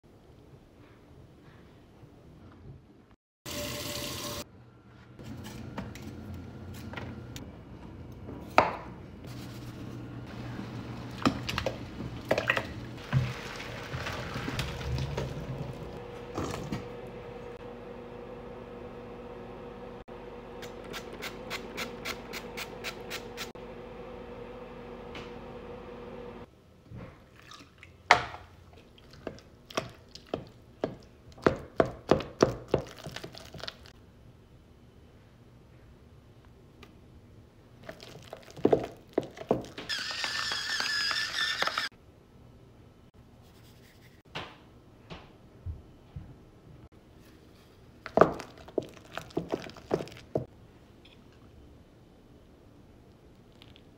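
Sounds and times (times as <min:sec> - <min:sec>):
electric pepper grinder whirring: 0:39.9 - 0:41.9.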